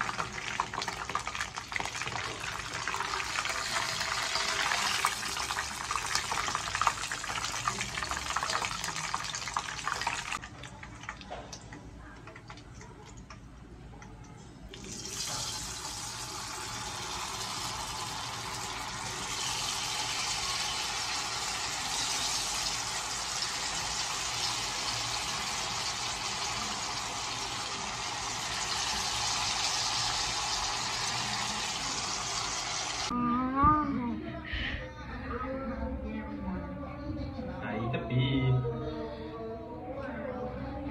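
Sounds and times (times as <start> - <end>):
hot oil sizzling in a wok: 0.0 - 10.4, 14.9 - 33.1.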